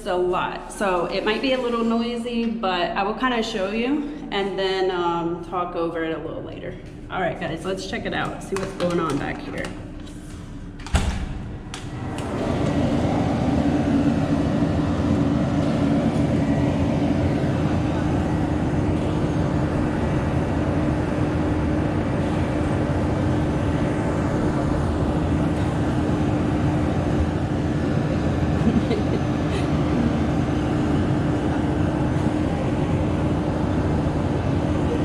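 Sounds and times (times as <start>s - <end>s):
heavy diesel machinery drone: 0.0s - 35.0s.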